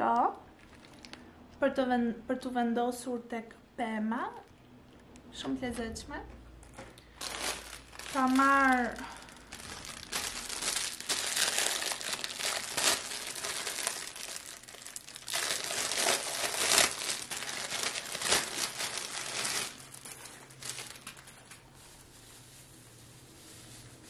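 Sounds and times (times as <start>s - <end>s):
plastic packaging crinkling: 0.5s - 1.3s, 6.6s - 24.0s.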